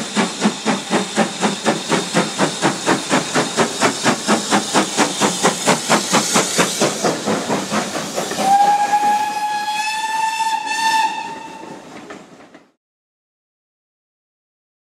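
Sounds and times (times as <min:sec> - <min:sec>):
steam locomotive exhaust beats: 0:00.0 - 0:12.7
steam whistle blast: 0:08.3 - 0:11.8.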